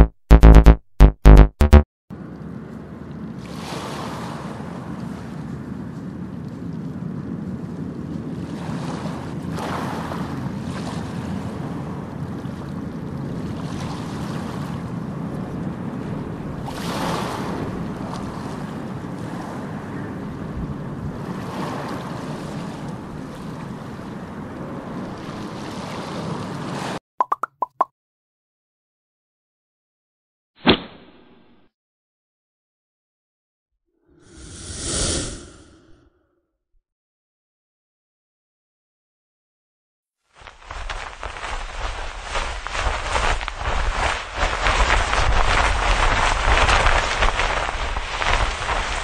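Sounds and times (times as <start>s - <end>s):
steady rushing noise: 40.4s - 49.0s.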